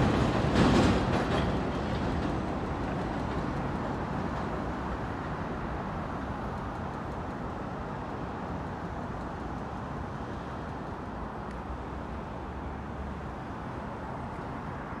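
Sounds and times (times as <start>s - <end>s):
low rumble of street traffic: 0.0s - 15.0s.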